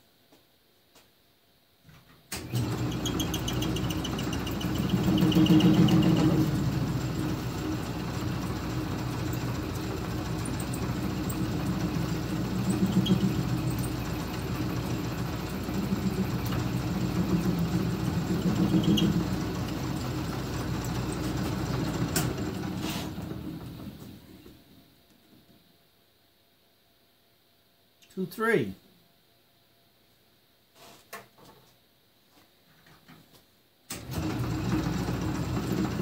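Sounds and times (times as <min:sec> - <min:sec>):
metal lathe running: 0:02.5 - 0:22.8.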